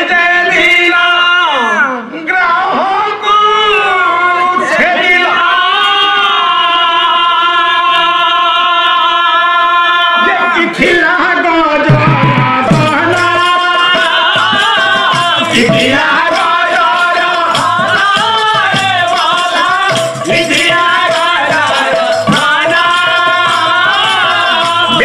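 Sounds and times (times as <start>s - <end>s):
man singing: 0.0s - 25.0s
percussion beat: 11.7s - 25.0s.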